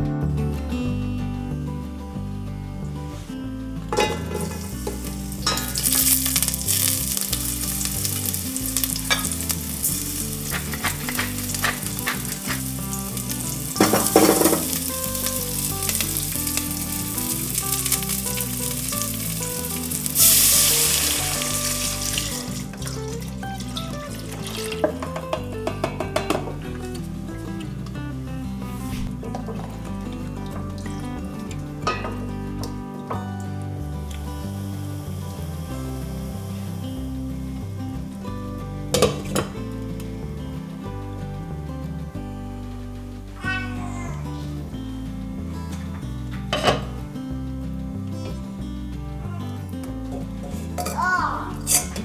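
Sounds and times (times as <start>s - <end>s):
wooden spoon stirring in pot: 4.2s - 20.3s
vegetables sizzling in oil: 4.2s - 25.1s, 34.1s - 37.2s.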